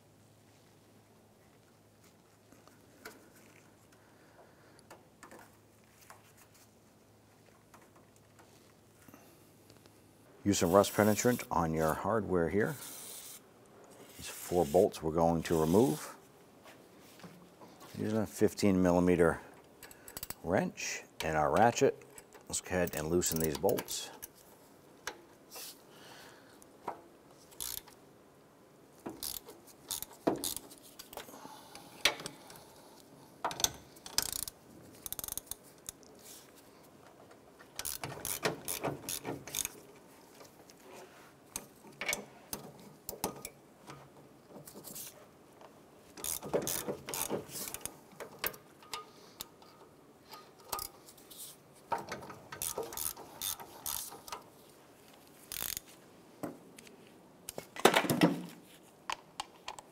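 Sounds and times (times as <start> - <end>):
hand ratchet clicking: 19.8 - 20.4, 21.6 - 24.4, 27.5 - 28.0, 29.1 - 31.2, 33.5 - 36.0, 37.8 - 39.8, 46.2 - 49.0, 52.5 - 54.4, 55.5 - 55.9.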